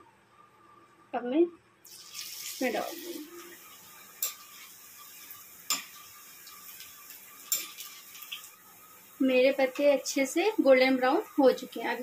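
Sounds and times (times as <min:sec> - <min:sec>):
food sizzling in oil: 0:01.8 - 0:12.0
metal spoon clicking on pan: 0:07.5 - 0:07.8.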